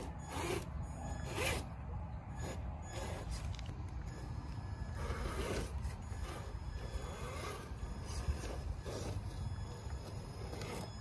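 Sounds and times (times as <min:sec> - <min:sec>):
electric motor whining: 0:00.0 - 0:11.0
tyres scraping over rock: 0:02.4 - 0:11.0.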